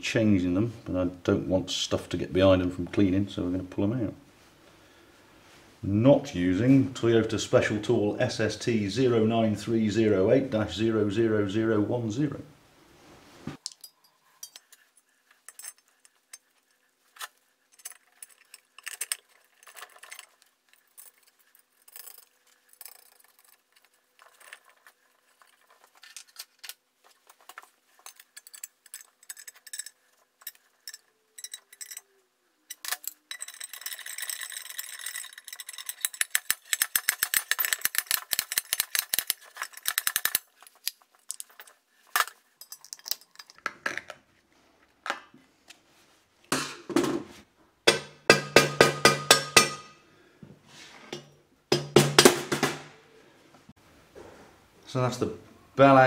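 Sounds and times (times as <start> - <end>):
steel tools clinking on metal: 13.6 - 14.9, 28.0 - 41.6, 47.9 - 50.0.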